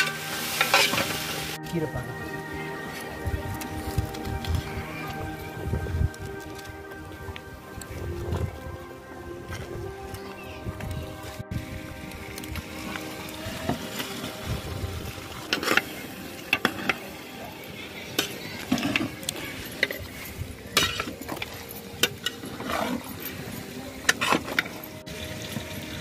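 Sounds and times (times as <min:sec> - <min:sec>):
metal ladle scraping metal pot: 0:00.0 - 0:01.2, 0:20.8 - 0:23.1.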